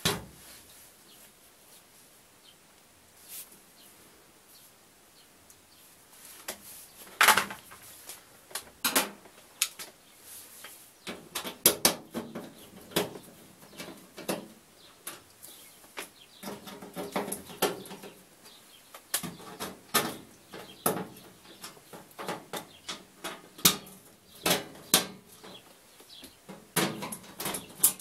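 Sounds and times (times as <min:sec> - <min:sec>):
clicks and knocks on sheet metal: 0:07.2 - 0:07.8, 0:08.5 - 0:09.9, 0:11.0 - 0:15.3, 0:16.4 - 0:18.2, 0:19.1 - 0:25.7, 0:26.4 - 0:28.0.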